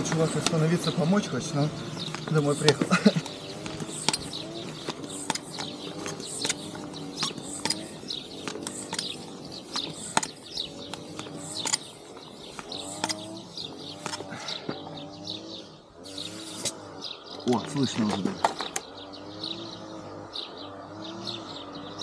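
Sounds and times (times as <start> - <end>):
hand air pump squeaking: 0.0 - 14.9, 16.0 - 16.9
birds chirping: 0.0 - 22.0
pump clicking: 1.9 - 14.3.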